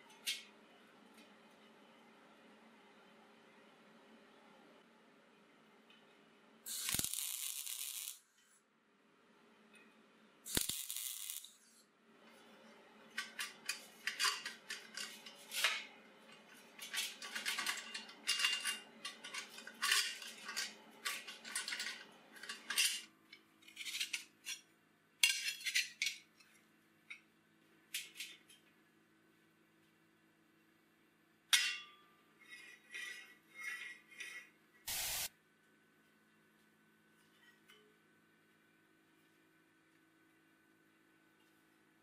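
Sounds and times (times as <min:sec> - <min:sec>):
welding crackle: 0:06.7 - 0:08.3, 0:10.5 - 0:11.7, 0:34.9 - 0:35.3
steel parts clanking on table: 0:13.1 - 0:15.9, 0:16.8 - 0:23.1.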